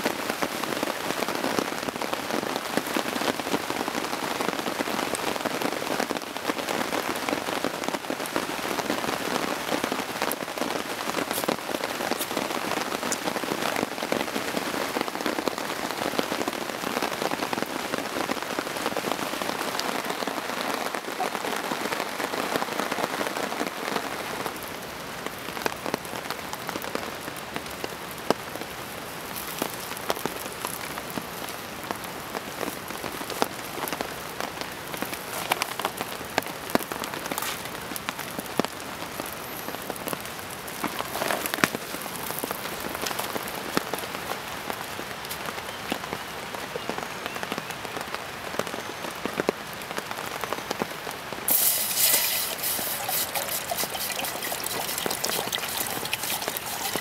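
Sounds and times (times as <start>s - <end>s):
heavy rain on foliage: 0.0s - 57.0s
water poured into steel pot: 51.5s - 57.0s.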